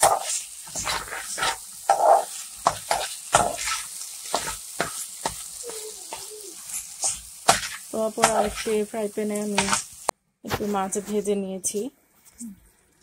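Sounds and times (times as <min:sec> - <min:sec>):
spatula scraping frying pan: 0:00.0 - 0:10.1
vegetables sizzling in oil: 0:00.0 - 0:11.9.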